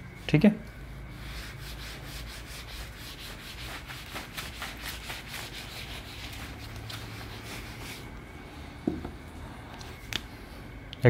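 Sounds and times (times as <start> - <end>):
duster rubbing whiteboard: 1.2 - 8.1.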